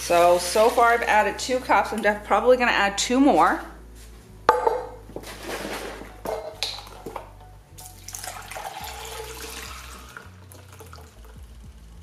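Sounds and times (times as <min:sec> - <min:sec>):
liquid pouring and splashing: 0:07.8 - 0:11.4.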